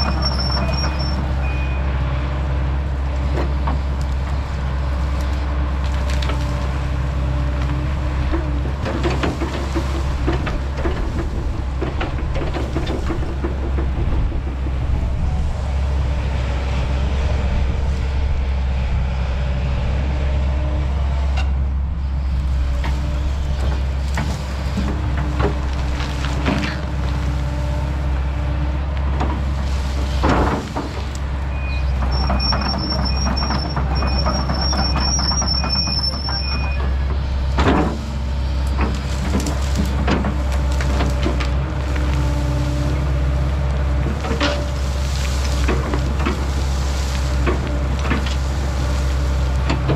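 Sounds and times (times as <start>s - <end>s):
short beeps: 0.0s - 1.9s
excavator diesel engine running: 0.0s - 49.9s.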